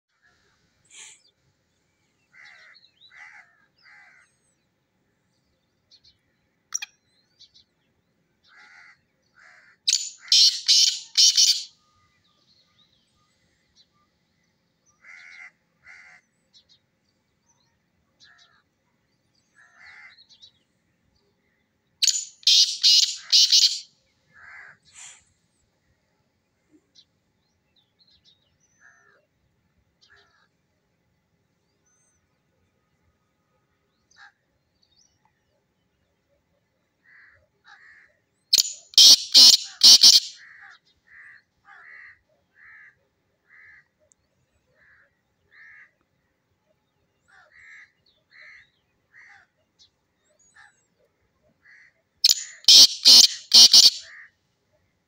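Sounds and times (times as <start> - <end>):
francolin calling: 9.9 - 11.7, 22.0 - 23.9, 38.5 - 40.4, 52.2 - 54.1.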